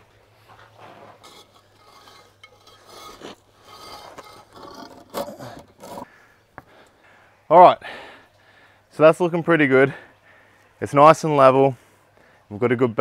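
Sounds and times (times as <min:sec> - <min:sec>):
concrete block scraping on sand: 0:00.7 - 0:06.1.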